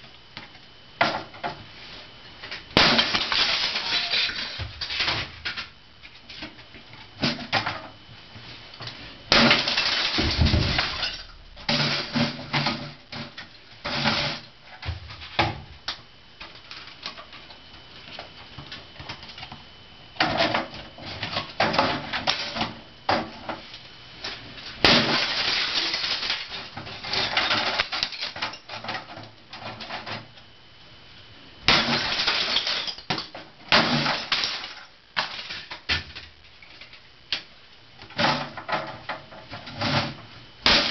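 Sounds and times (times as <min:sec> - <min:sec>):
hammer smashing plastic: 0:02.8 - 0:05.6, 0:09.3 - 0:14.5, 0:24.8 - 0:29.0, 0:31.7 - 0:36.3, 0:40.0 - 0:40.9.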